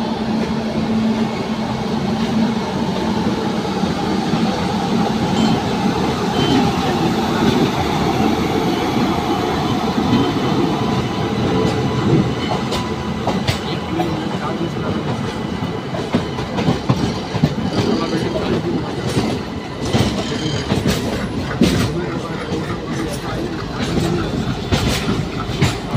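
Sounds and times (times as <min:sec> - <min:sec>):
train rumbling along tracks: 0:00.0 - 0:25.9.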